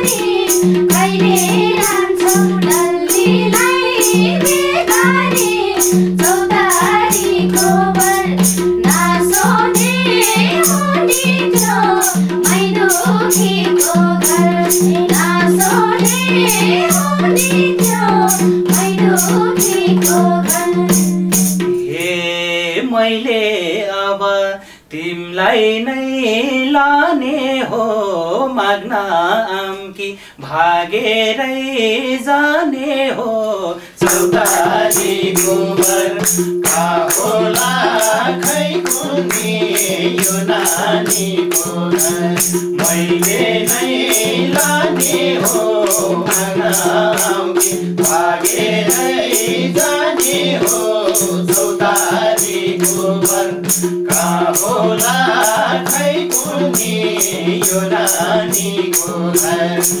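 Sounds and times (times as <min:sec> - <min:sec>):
band with fast drum beat: 0:00.0 - 0:21.8, 0:34.0 - 1:00.0
man singing: 0:21.8 - 1:00.0.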